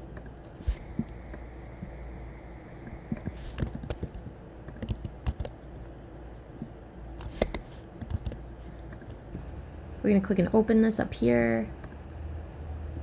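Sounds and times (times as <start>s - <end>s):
steady low hum: 0.0s - 13.0s
keyboard and mouse clicks: 2.8s - 6.0s, 7.2s - 9.7s.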